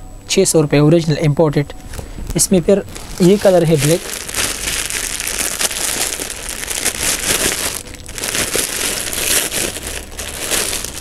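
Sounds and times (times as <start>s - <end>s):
plastic bag crinkling: 2.8s - 11.0s.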